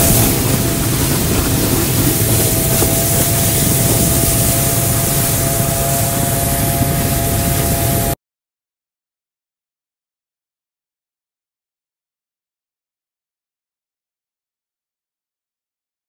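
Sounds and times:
atv engine running steadily: 0.0 - 8.2
rush of wind and snow: 0.0 - 8.2.

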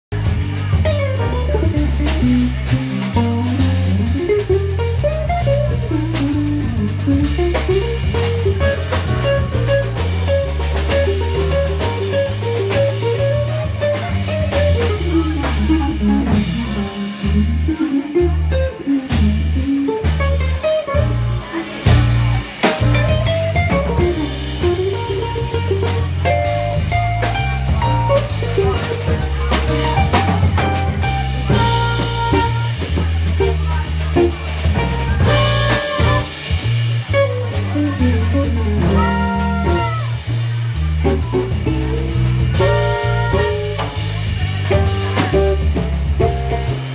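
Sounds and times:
drum kit: 0.1 - 46.9
walking bass line: 0.1 - 46.9
electric guitar solo: 38.8 - 40.1.

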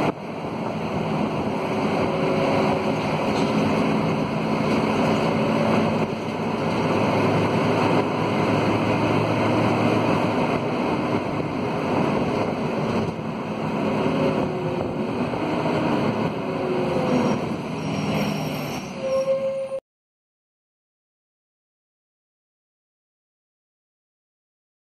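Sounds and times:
bus diesel engine running: 0.0 - 19.7
road noise: 0.0 - 19.8.

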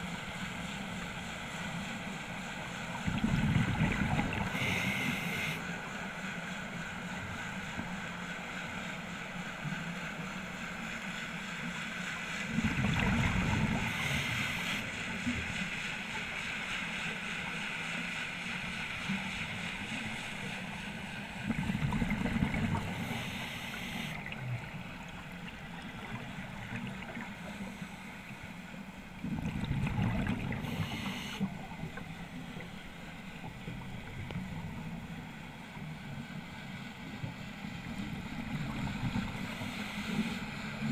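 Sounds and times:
regulator steady hiss: 0.0 - 25.6, 30.4 - 40.9
exhaled bubbles rushing underwater: 3.0 - 5.5, 12.4 - 15.4, 21.4 - 27.6, 29.1 - 32.8.

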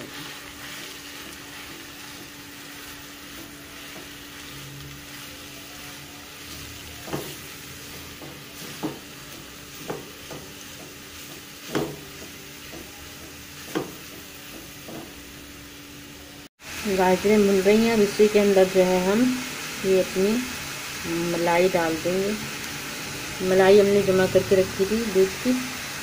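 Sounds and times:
carrots sizzling in wok: 0.0 - 26.0
spatula knocking and scraping pan: 6.9 - 15.3.

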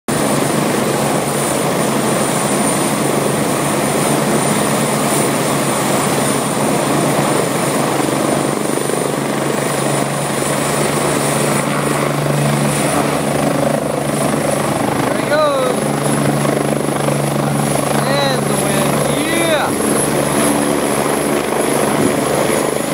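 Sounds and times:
helicopter rotor running: 0.1 - 22.9
high turbine whine: 9.3 - 22.9.

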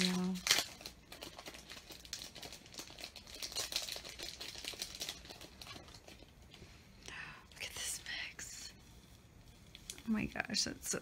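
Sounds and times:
plastic packaging crinkling: 0.0 - 6.6.

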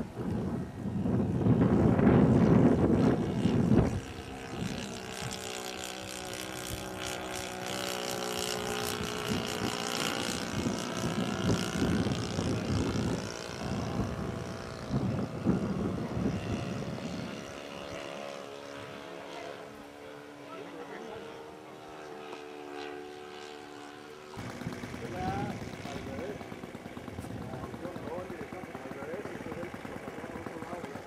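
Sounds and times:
wind buffeting microphone: 0.0 - 19.1, 24.4 - 28.8
model airplane engine drone: 0.0 - 31.0.

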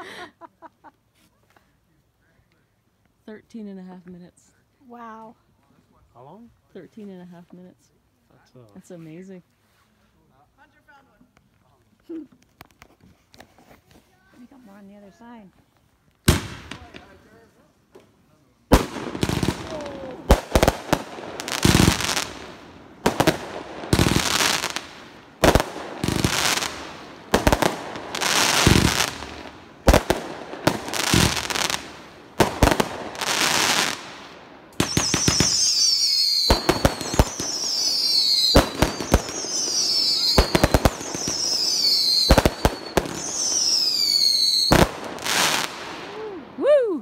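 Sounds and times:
fireworks banging: 16.2 - 18.0, 18.7 - 46.2
fireworks crackling: 16.2 - 46.8
falling firework whistle: 34.8 - 44.8.

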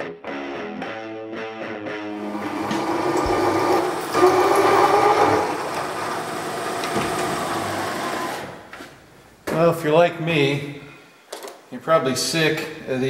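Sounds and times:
milling machine humming: 2.2 - 8.6.

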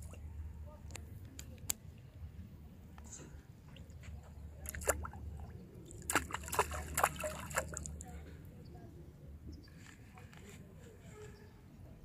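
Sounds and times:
water splashing and plopping: 4.6 - 8.0.

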